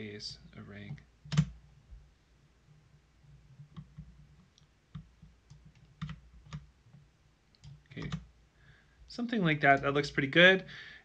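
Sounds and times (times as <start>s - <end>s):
computer mouse clicks: 3.6s - 8.3s.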